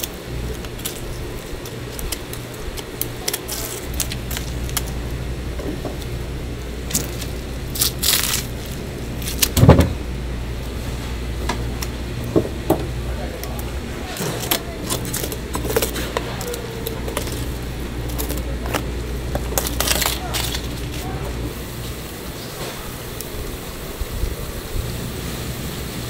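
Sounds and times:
steady low hum: 0:00.0 - 0:26.0
heavy wet thud: 0:09.4 - 0:10.1.

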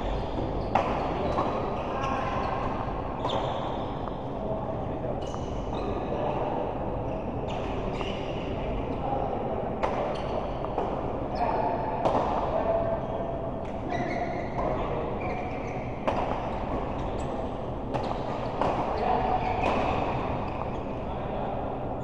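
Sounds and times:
background murmur: 0:00.0 - 0:22.0
sharp racket hits echoing: 0:00.4 - 0:01.7, 0:16.0 - 0:16.9, 0:17.9 - 0:20.4.

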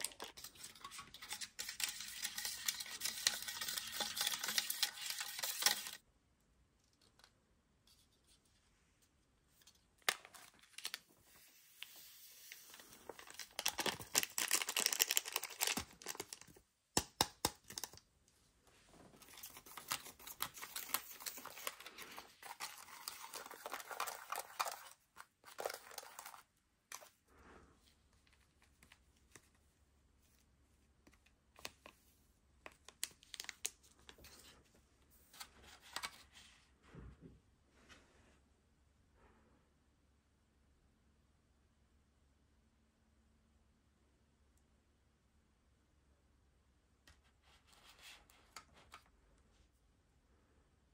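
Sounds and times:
plastic spoon scraping tray: 0:00.3 - 0:06.0.

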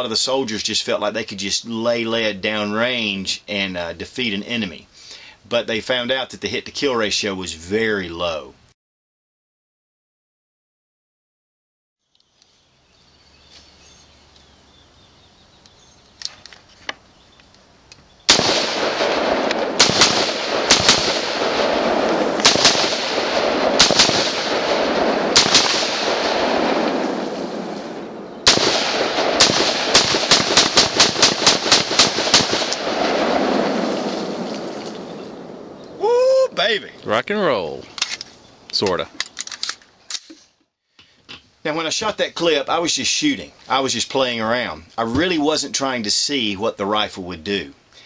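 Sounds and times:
rifle shots with echo: 0:18.3 - 0:35.8.

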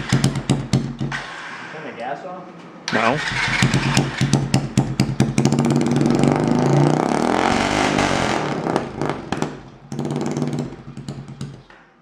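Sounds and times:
quad engine revving: 0:02.9 - 0:10.8.

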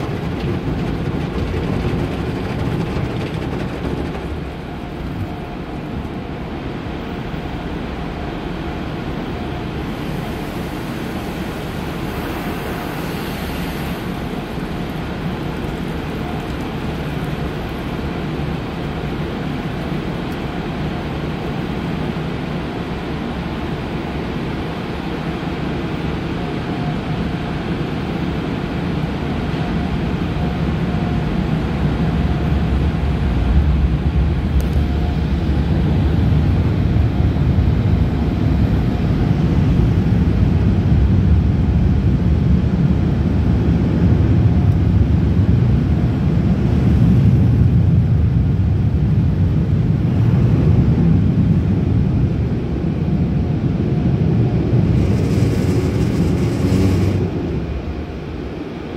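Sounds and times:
car wash water spray: 0:00.0 - 0:06.0, 0:09.8 - 0:24.8, 0:54.6 - 0:57.7
low rumble: 0:00.0 - 0:07.9, 0:32.1 - 0:58.9.

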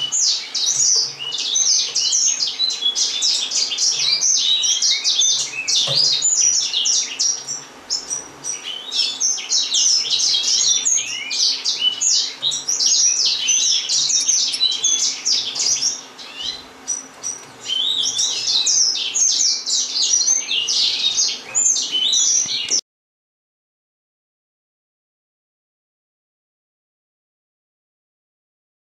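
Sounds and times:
finches chirping: 0:00.0 - 0:22.8.

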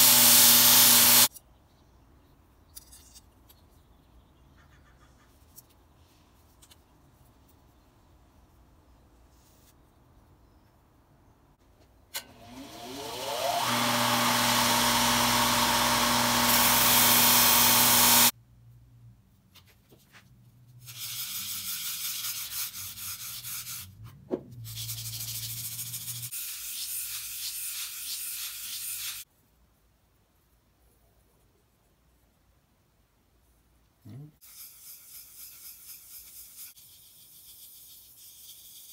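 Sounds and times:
belt sander motor whine and hum: 0:12.2 - 0:18.3
metal part scratching on sandpaper: 0:20.8 - 0:24.0, 0:24.6 - 0:29.2, 0:34.4 - 0:38.9.

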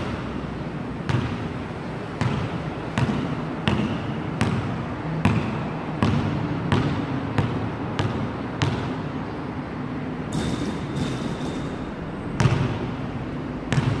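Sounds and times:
basketball bouncing on hard court: 0:01.0 - 0:01.5, 0:02.1 - 0:09.0, 0:12.3 - 0:13.0, 0:13.6 - 0:14.0.

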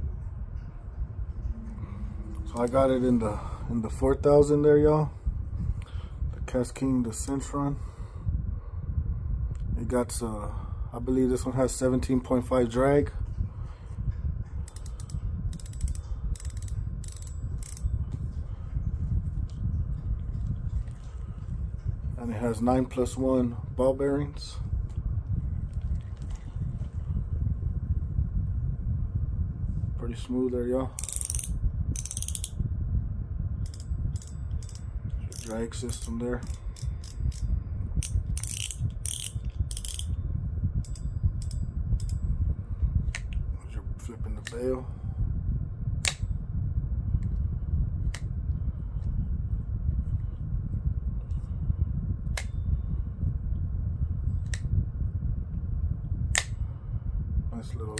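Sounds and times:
low handling rumble: 0:00.0 - 0:57.9
fishing reel drag clicking: 0:14.7 - 0:17.9, 0:31.0 - 0:32.6, 0:33.7 - 0:40.2.

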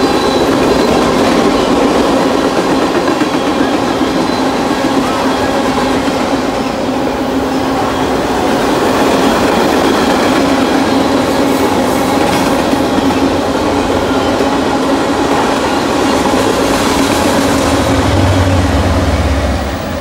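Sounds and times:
steel wheels on rail: 0:00.0 - 0:20.0.

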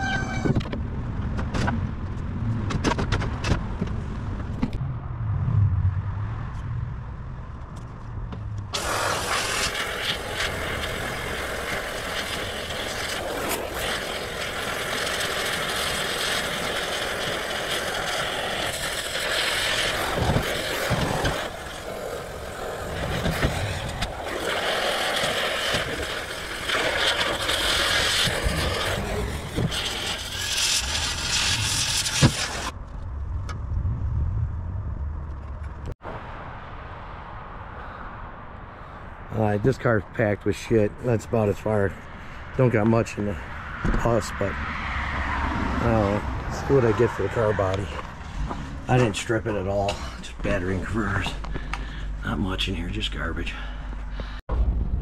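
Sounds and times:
hydraulic rushing hiss: 0:08.8 - 0:32.7
low engine rumble: 0:45.5 - 0:55.0.

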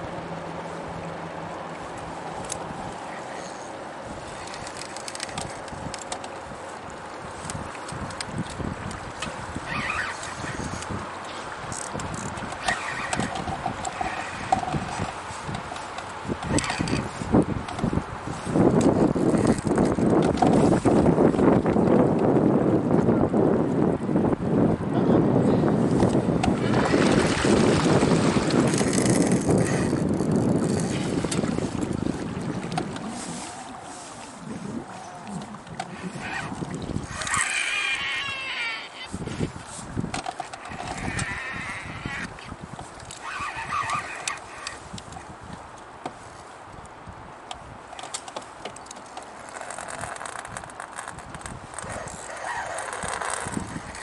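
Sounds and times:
water washing past kayak hull: 0:00.0 - 0:54.0
wind on microphone: 0:01.8 - 0:54.0.

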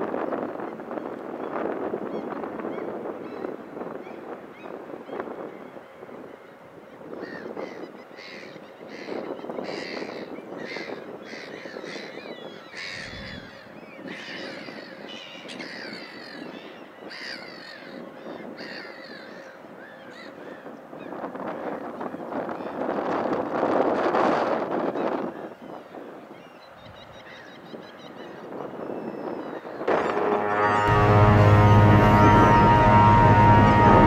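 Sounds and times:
birds calling: 0:01.4 - 0:22.8, 0:25.0 - 0:30.2
steady background rush: 0:29.9 - 0:34.0.

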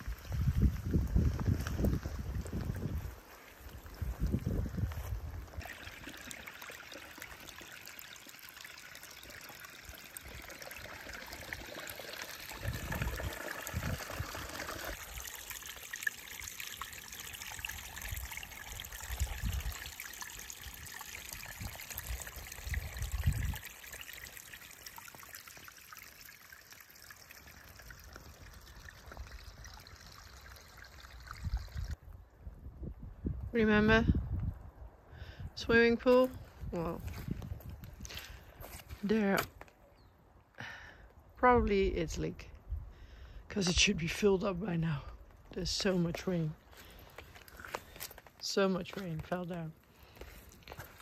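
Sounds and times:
water trickling over rocks: 0:00.0 - 0:32.0, 0:35.7 - 0:39.8, 0:43.6 - 0:51.0.

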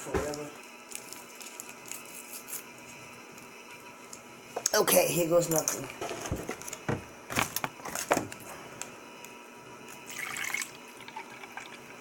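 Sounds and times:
water pouring into a glass: 0:10.0 - 0:12.0.

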